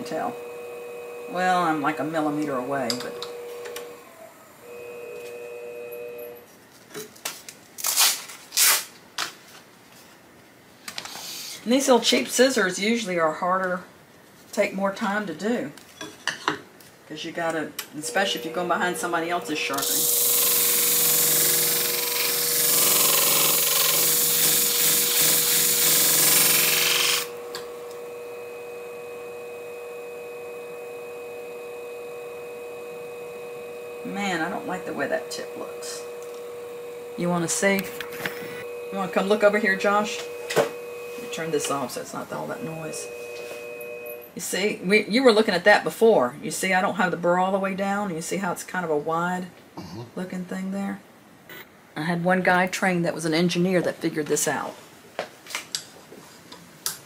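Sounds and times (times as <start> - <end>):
sharpening machine humming: 0.0 - 6.4, 17.8 - 44.4
grinding disc hissing on blade: 18.0 - 44.3.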